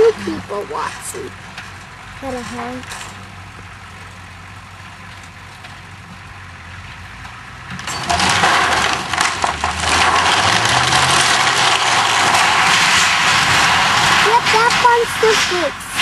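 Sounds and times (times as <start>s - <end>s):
low engine hum: 0.0s - 16.0s
wooden barn cracking and collapsing: 7.2s - 16.0s.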